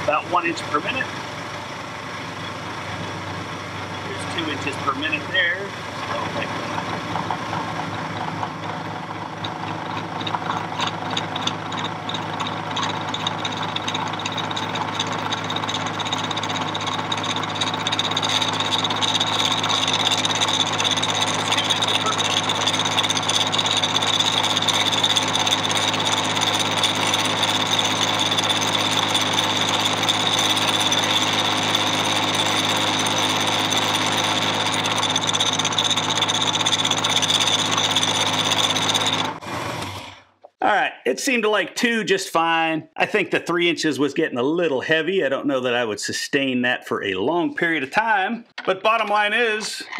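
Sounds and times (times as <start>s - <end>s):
mill spindle hum: 0.0s - 40.0s
whine of metal cutting: 0.0s - 40.3s.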